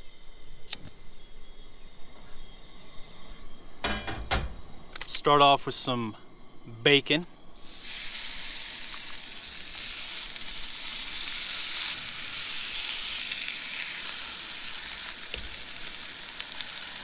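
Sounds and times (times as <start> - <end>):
bacon sizzling in skillet: 7.6 - 17.0.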